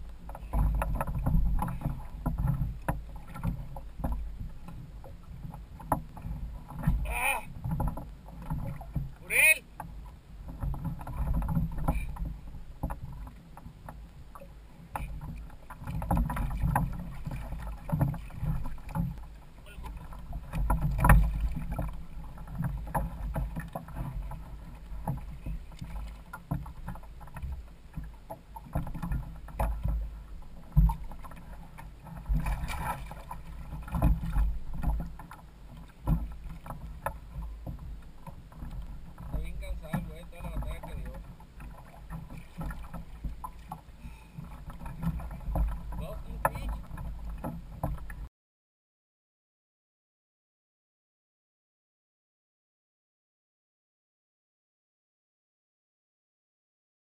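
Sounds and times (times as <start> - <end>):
water slapping hull: 0.0 - 48.3.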